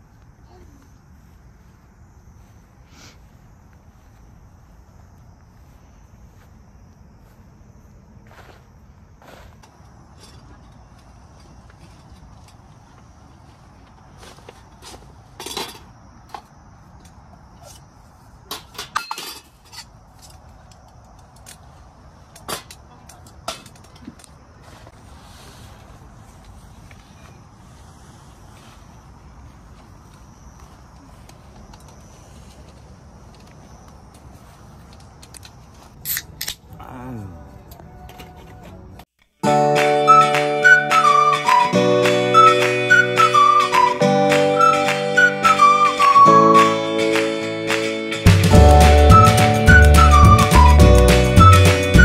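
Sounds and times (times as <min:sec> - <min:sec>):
insects chirping: 0:00.0 - 0:37.9
short rustle: 0:24.6 - 0:29.0.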